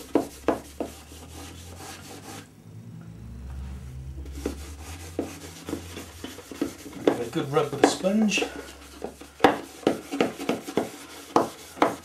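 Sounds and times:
low hum: 0.1s - 7.8s
wet sponge scrubbing: 4.3s - 12.0s.

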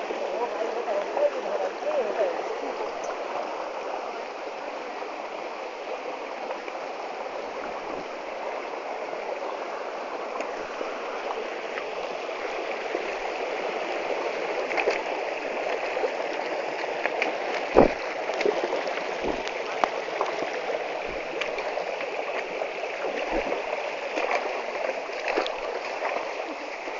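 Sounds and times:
mountain stream flowing: 0.0s - 26.9s
faint clicks: 3.0s - 3.2s.

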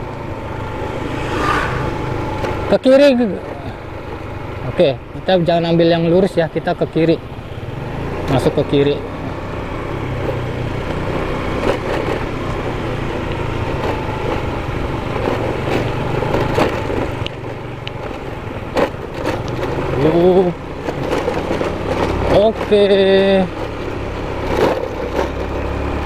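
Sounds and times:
motorcycle engine running: 0.0s - 26.0s
wind noise: 0.4s - 2.8s.

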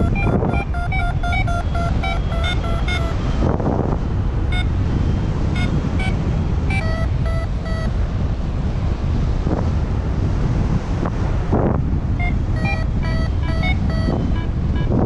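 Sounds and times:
variometer short beeps: 0.0s - 3.4s, 4.5s - 4.8s, 5.6s - 8.0s, 12.2s - 15.0s
wind buffeting microphone: 0.0s - 15.0s.

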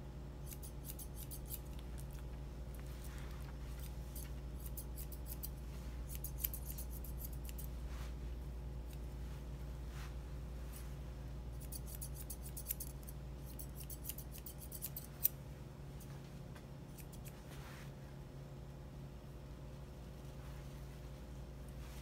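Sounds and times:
low steady hum: 0.0s - 22.0s
shears snipping fur: 0.4s - 8.2s, 11.5s - 15.4s, 16.9s - 17.6s.

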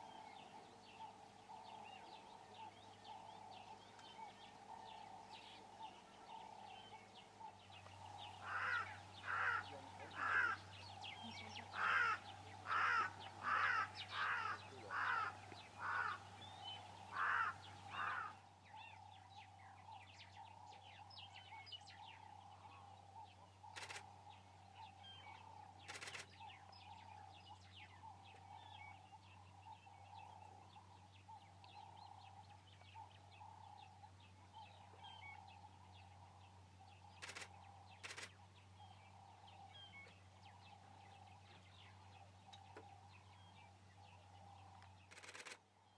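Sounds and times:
faint bird chirps: 0.0s - 45.9s
sharp clicks: 25.8s - 26.3s, 37.2s - 38.4s, 45.1s - 45.6s.

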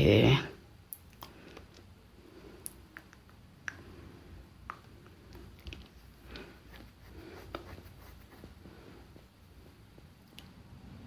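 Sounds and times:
wet lip smacks: 0.9s - 1.9s, 2.6s - 3.9s.

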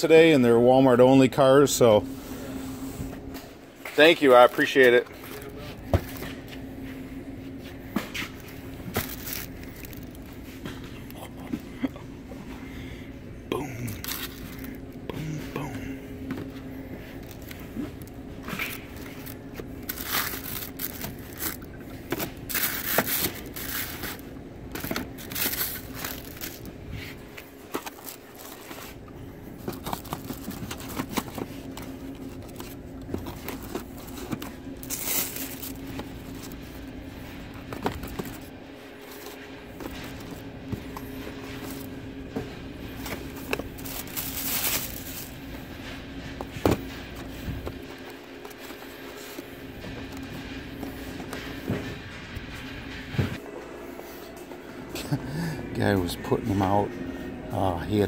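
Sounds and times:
cardboard and packing crinkling: 8.1s - 10.6s, 13.8s - 14.9s, 16.3s - 51.8s.

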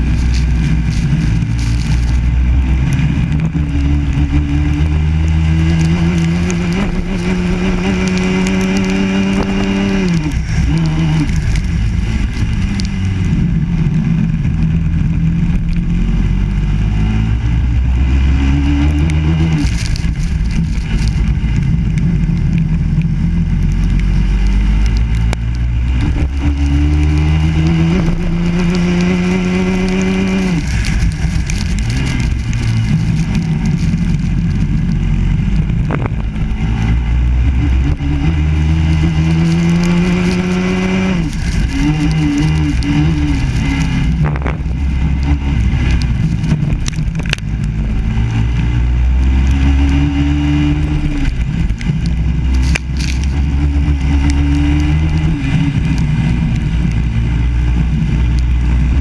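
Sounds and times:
racing kart engine revving: 0.0s - 22.3s, 23.2s - 35.9s, 36.6s - 59.0s.

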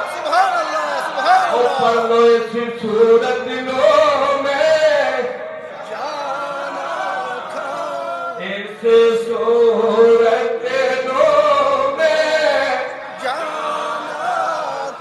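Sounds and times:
man chanting into a microphone: 1.5s - 6.4s, 8.3s - 13.5s.

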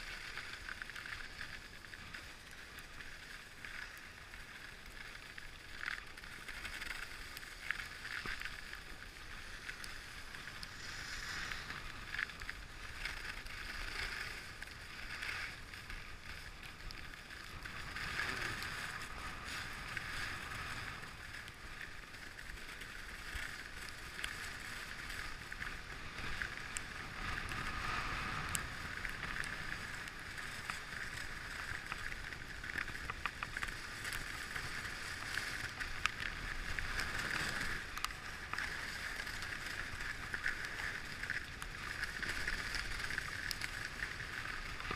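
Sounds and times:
skis scraping on snow: 0.0s - 44.9s
wind rumbling on microphone: 0.0s - 44.9s.

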